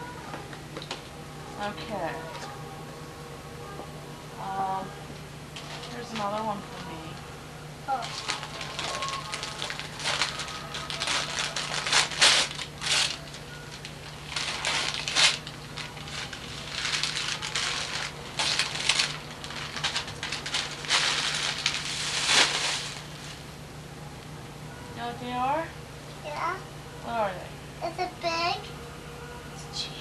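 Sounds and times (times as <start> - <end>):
steady low hum: 0.0 - 30.0
wrapping paper tearing and crumpling: 7.9 - 23.5.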